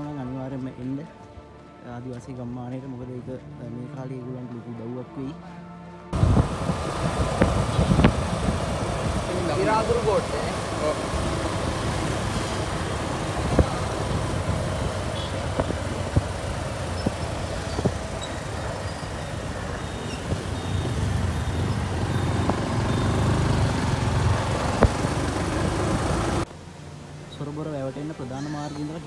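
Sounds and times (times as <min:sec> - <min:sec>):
wind and road noise: 0:00.0 - 0:29.0
motorcycle engine running: 0:06.2 - 0:26.5.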